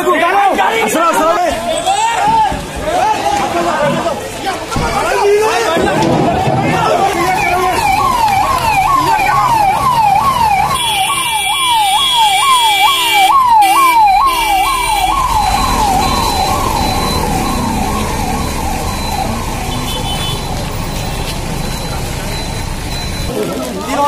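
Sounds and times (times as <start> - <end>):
ambulance siren wailing: 5.4 - 23.6.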